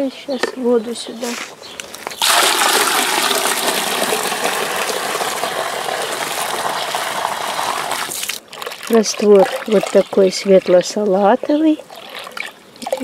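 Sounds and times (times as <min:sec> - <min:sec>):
water gushing into plastic bucket: 0:02.2 - 0:11.0, 0:11.8 - 0:13.0.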